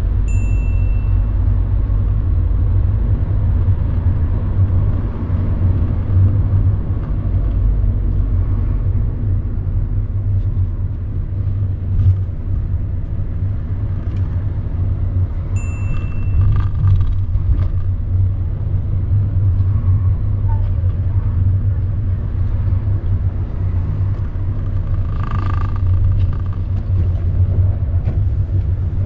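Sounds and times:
car engine and road rumble: 0:00.0 - 0:29.0
short high beep: 0:15.6 - 0:16.6.

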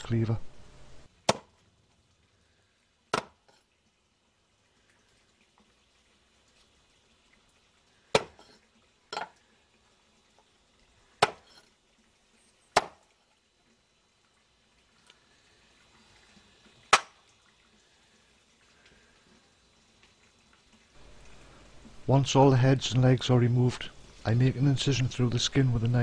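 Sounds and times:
cleaver chopping on wooden board: 0:01.3 - 0:01.5, 0:03.1 - 0:03.4, 0:08.2 - 0:08.4, 0:11.2 - 0:11.4, 0:12.8 - 0:13.0.

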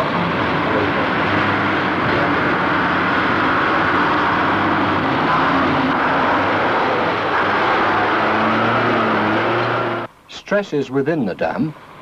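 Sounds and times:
heavy machinery engine drone: 0:00.0 - 0:10.1.

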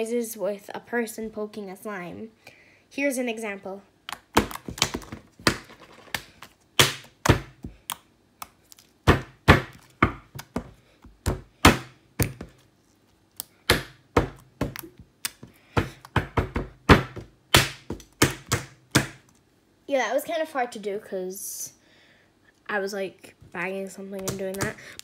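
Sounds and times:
sharp knocks and thumps: 0:13.7 - 0:19.2.

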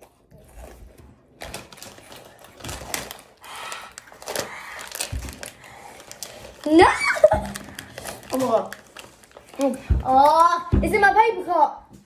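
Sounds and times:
foil bag crackling: 0:01.4 - 0:10.5.

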